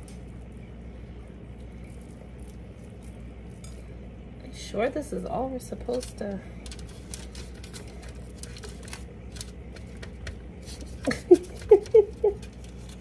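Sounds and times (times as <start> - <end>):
hands pressing food on foil tray: 5.9 - 13.0.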